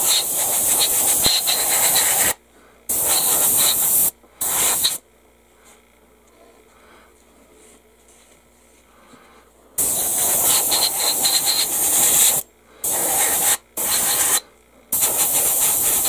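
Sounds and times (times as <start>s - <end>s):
airbrush spraying: 0.0s - 5.0s, 9.8s - 14.4s, 15.0s - 16.0s.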